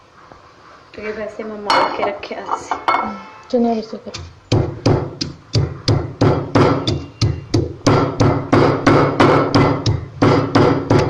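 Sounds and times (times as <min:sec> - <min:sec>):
stone pestle pounding in mortar: 0:04.1 - 0:11.0.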